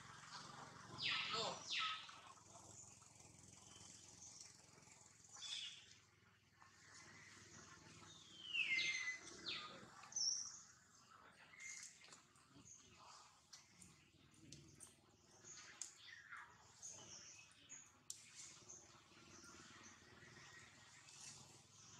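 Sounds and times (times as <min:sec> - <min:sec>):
high-pitched animal calls: 0:01.0 - 0:02.2.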